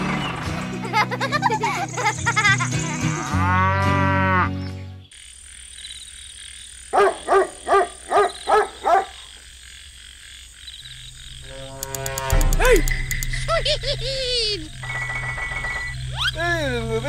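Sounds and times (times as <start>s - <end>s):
cartoon laughing sound effect: 0.8s - 3.2s, 12.5s - 14.7s, 16.1s - 16.4s
cow mooing: 3.0s - 4.6s, 11.4s - 12.6s
frog croaking: 5.1s - 17.0s.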